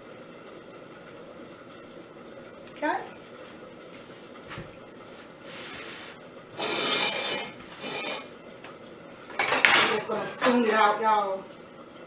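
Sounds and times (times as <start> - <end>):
metal spoon scraping a pot: 6.6 - 8.3.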